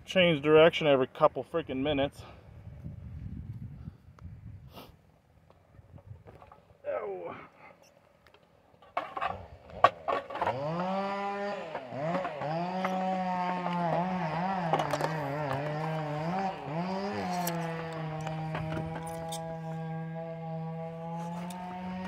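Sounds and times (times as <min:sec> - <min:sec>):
chainsaw revving in wood: 0:08.9 - 0:22.0.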